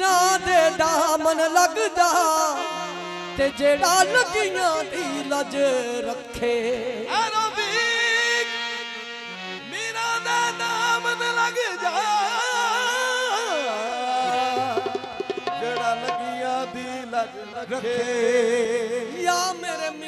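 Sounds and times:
men singing devotional music: 0:00.0 - 0:20.0
held accompaniment notes: 0:14.2 - 0:17.8
quick drum strokes: 0:14.6 - 0:16.7.

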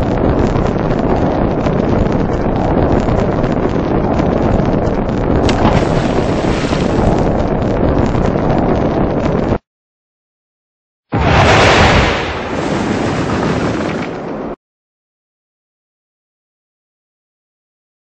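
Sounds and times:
loud crackly rushing noise: 0:00.0 - 0:09.6.

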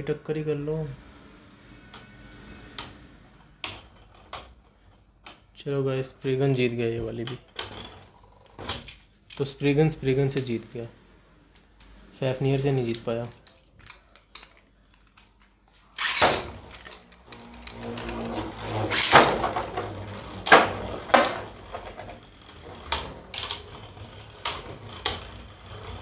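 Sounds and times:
spinning tops whirring: 0:15.9 - 0:26.0
spinning tops launched: 0:16.0 - 0:26.0.

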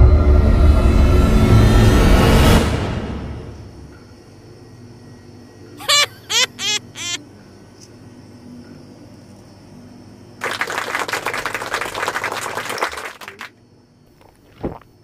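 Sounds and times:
parrot whistle: 0:05.8 - 0:07.2.

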